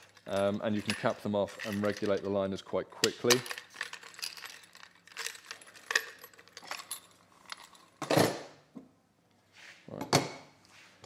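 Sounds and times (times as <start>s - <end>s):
small parts clicking and clinking: 0.0s - 8.0s.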